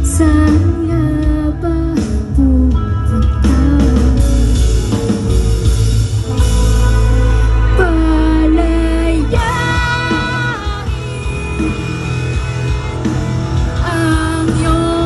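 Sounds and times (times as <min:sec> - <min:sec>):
woman singing: 0:00.0 - 0:04.8, 0:07.7 - 0:13.0, 0:13.8 - 0:15.0
live rock band through pa: 0:00.0 - 0:15.0.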